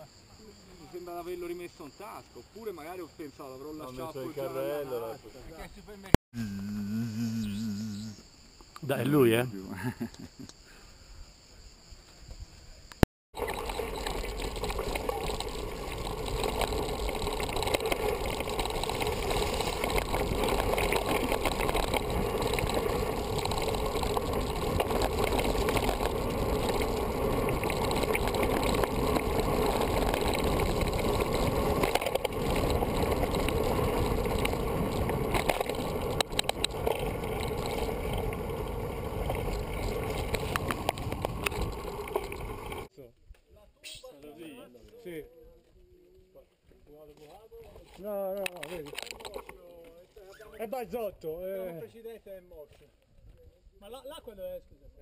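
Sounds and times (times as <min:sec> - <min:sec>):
bike tyres rolling on dirt trail: 0:00.0 - 0:05.9, 0:11.9 - 0:43.6, 0:44.5 - 0:51.8
bike rattling and clattering: 0:13.4 - 0:42.9.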